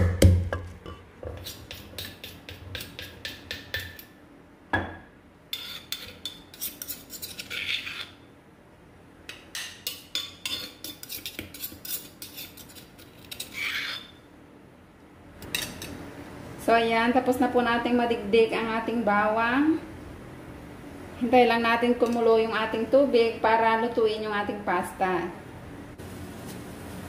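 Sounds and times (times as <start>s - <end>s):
spoon knocking mortar: 0.0s - 4.1s
metal spoon scraping clay mortar: 1.3s - 4.0s, 5.5s - 8.2s, 9.8s - 14.2s.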